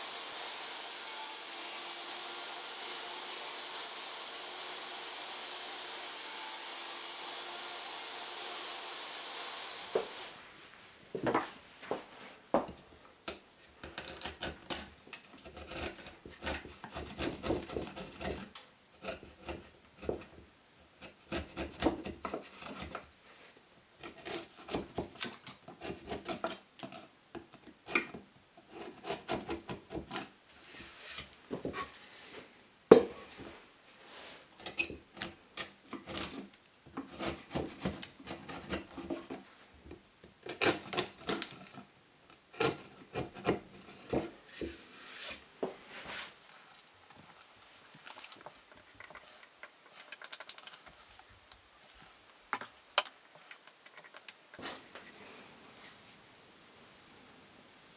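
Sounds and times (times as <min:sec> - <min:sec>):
chisel paring wood: 0:13.3 - 0:20.4, 0:21.0 - 0:23.0.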